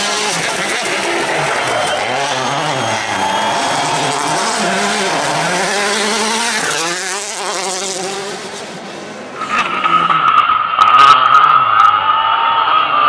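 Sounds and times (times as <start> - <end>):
rally car engine revving hard: 0.0 - 13.0.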